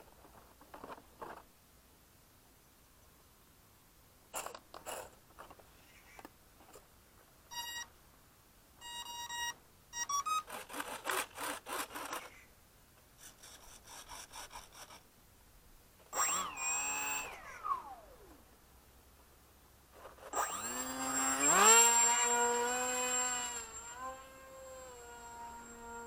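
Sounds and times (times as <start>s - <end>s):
propeller motor whine: 20.5s - 26.0s.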